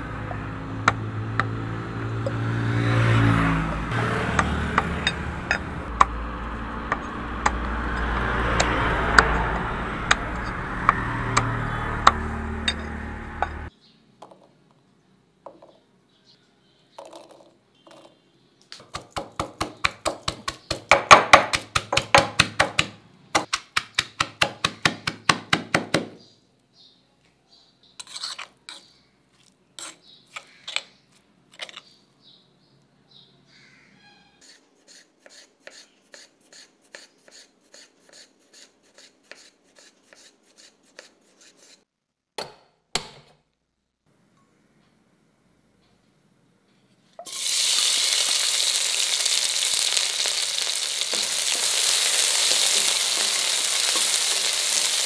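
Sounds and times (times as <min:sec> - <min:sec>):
cleaver chopping ribs on wood: 0:04.3 - 0:05.1, 0:18.8 - 0:26.2
stone pestle pounding: 0:18.8 - 0:26.2.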